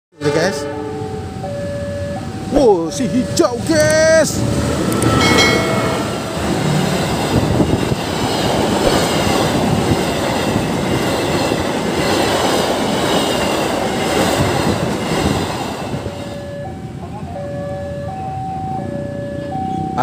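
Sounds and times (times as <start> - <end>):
train wheels rumbling on rails: 2.2 - 17.9.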